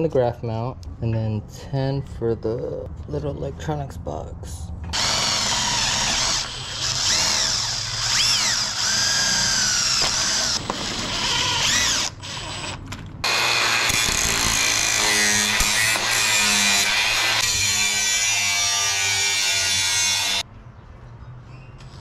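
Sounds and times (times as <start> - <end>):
cordless drill boring into plastic: 5.0 - 16.2.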